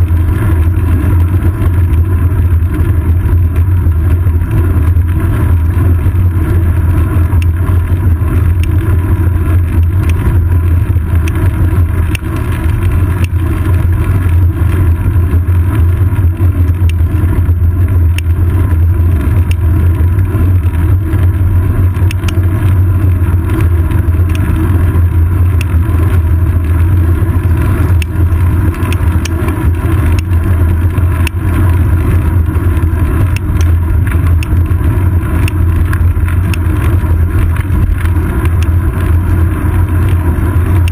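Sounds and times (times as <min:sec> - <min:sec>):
road vibration rumble: 0:00.0 - 0:40.9
small ticks and knocks: 0:07.4 - 0:08.9, 0:09.7 - 0:14.9, 0:15.9 - 0:17.2, 0:18.0 - 0:18.4, 0:21.9 - 0:22.8, 0:23.5 - 0:24.6, 0:25.4 - 0:40.9.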